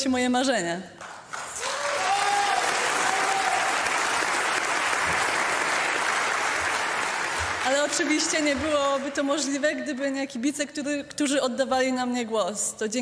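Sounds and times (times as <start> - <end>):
audience applauding: 1.0 - 10.1.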